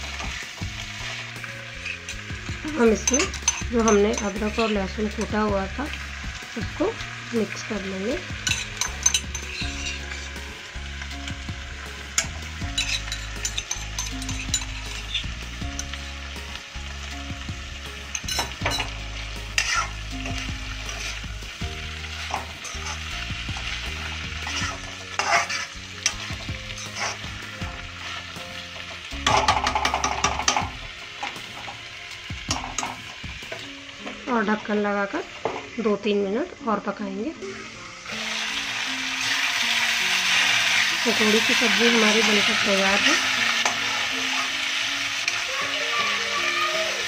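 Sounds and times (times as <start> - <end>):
vegetables sizzling in oil: 0.0 - 47.0
metal spatula scraping pan: 0.1 - 5.3, 8.4 - 10.5, 12.1 - 15.9, 18.1 - 21.2, 22.1 - 31.8.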